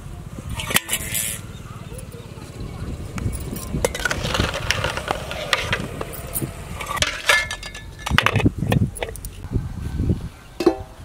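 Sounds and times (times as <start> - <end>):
metal clinks and knocks: 3.3 - 9.4.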